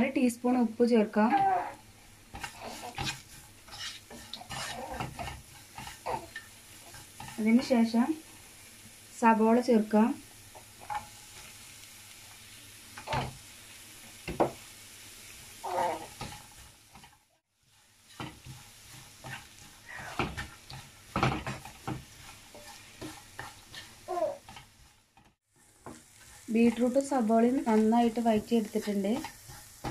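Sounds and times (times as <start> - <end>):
light sizzle: 0.0 - 29.9
spatula scraping frying pan: 1.2 - 8.6, 10.4 - 11.8, 15.4 - 29.9.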